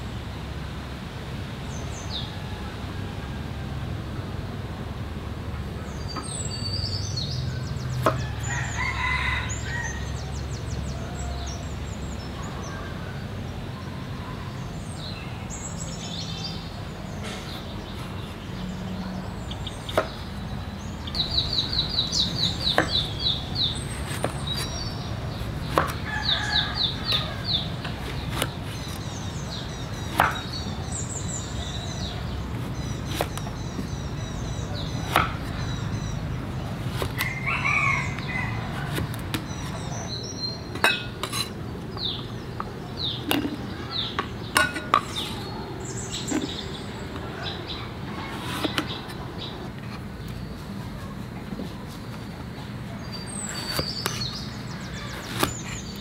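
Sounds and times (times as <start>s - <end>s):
birds calling: 5.5s - 56.0s
cleaver chopping on wooden board: 8.0s - 8.2s, 19.9s - 20.2s, 22.6s - 23.1s, 24.0s - 26.1s, 27.1s - 29.1s, 30.0s - 30.6s, 32.6s - 34.0s, 34.9s - 35.7s, 36.9s - 37.3s, 53.5s - 54.3s, 55.1s - 55.8s.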